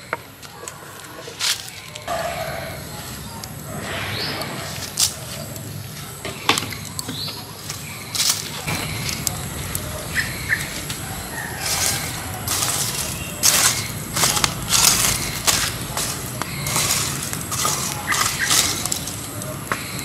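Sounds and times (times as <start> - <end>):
charcoal fire crackling: 0.0 - 20.0
hatchet crunching charcoal: 0.0 - 20.0
bird chirps: 1.6 - 20.0.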